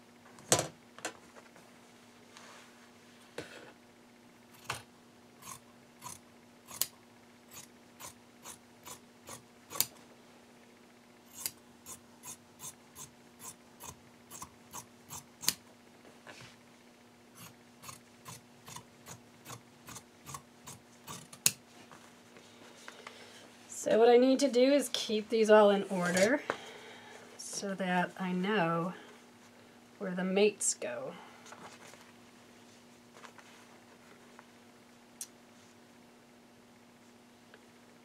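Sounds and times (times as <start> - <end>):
faint steady hum: 0.0 - 38.0
shears snipping fabric: 5.4 - 10.0, 11.3 - 15.6, 17.4 - 21.6.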